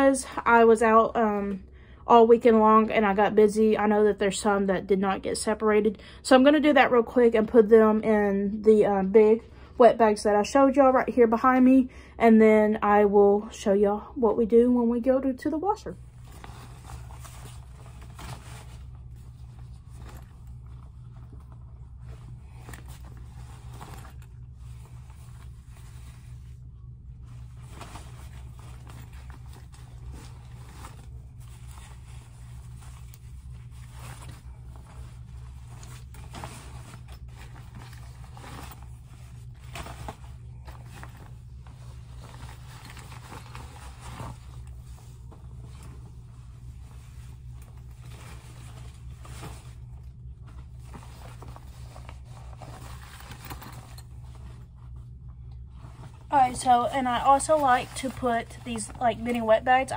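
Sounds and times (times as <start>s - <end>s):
steady low hum: 0.0s - 59.9s
fabric rustling and scraping: 15.7s - 59.9s.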